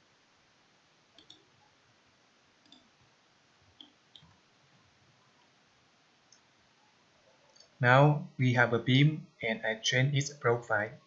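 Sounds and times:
low steady hiss: 0.0s - 11.0s
computer mouse clicks: 1.1s - 1.5s, 2.6s - 2.9s.

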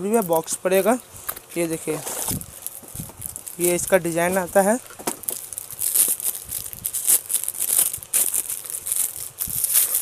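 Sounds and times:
plastic wrap crinkling: 0.0s - 10.0s.

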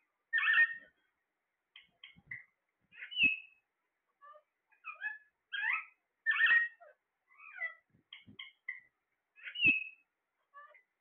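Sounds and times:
parakeets chirping: 0.3s - 1.0s, 1.8s - 11.0s.

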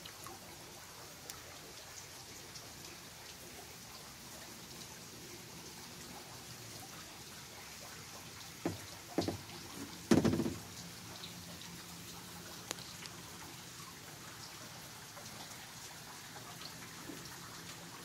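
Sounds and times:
water dripping and trickling: 0.0s - 18.0s
knocks: 8.6s - 10.7s.

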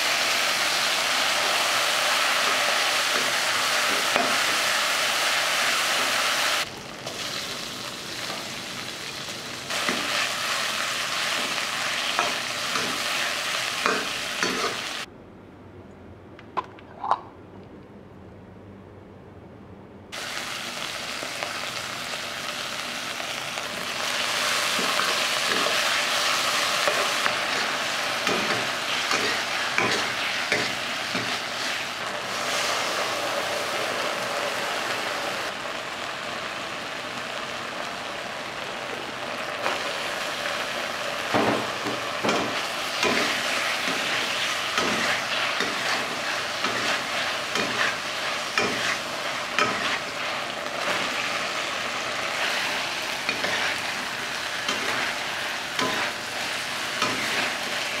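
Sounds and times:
food sizzling in oil: 0.0s - 15.1s, 20.2s - 58.0s
metal spatula scraping a wok: 43.0s - 51.1s, 55.8s - 58.0s.

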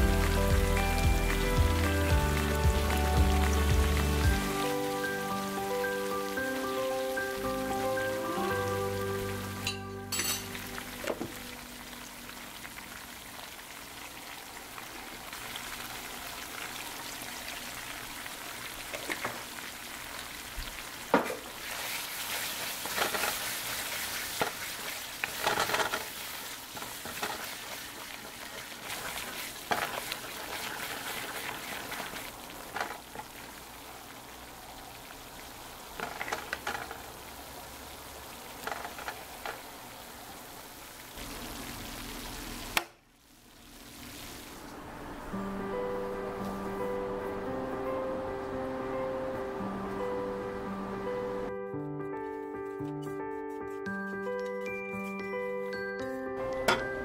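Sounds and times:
sauce sizzling in a wok: 0.0s - 51.1s
wooden spoon scraping a pan: 21.6s - 33.2s.

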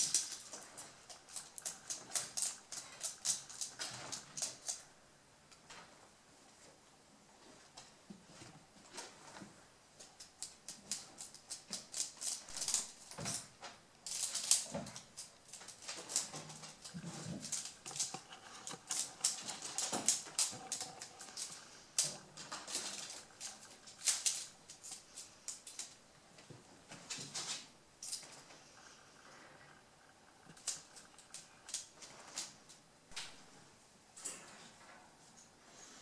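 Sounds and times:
crackling clicks: 0.0s - 4.9s, 10.0s - 26.0s, 27.4s - 33.4s
rabbits rustling: 0.0s - 36.0s.

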